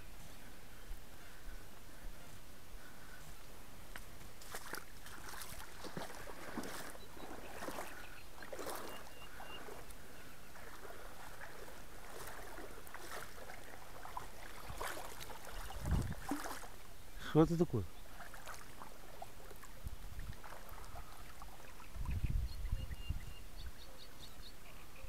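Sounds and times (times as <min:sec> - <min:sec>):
water splashing and lapping: 0:02.8 - 0:22.3.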